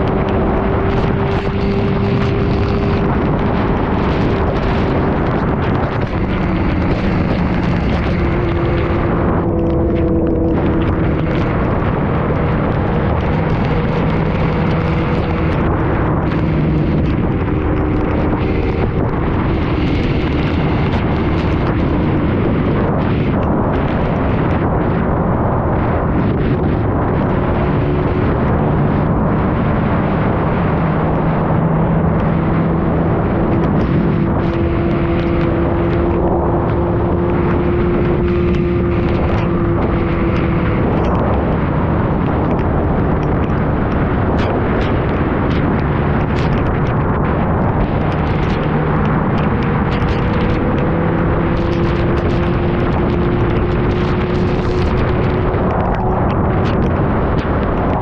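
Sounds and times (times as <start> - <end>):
raindrops ticking on camera: 0.0 - 24.6, 32.1 - 58.0
motorcycle engine steady note: 0.0 - 43.2
wind blasting microphone: 0.0 - 58.0.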